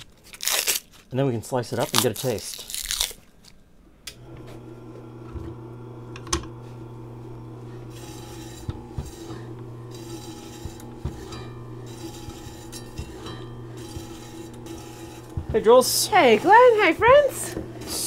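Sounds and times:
meat slicer motor humming: 4.1s - 18.0s
rasping slicing strokes: 7.8s - 18.0s.

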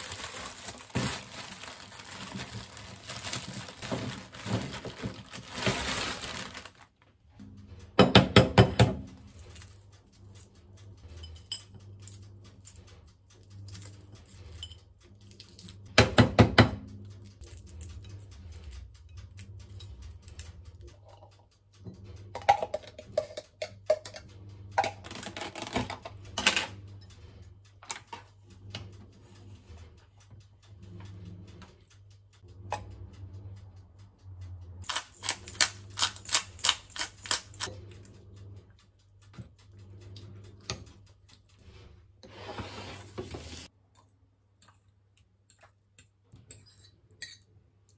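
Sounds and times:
spoon clinking and scraping: 13.7s - 15.7s, 46.4s - 47.5s
pepper grinder clicking: 34.8s - 37.7s.

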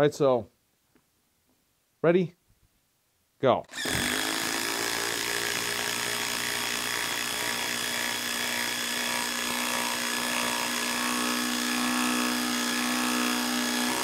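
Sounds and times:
impact wrench hammering: 3.7s - 14.0s.

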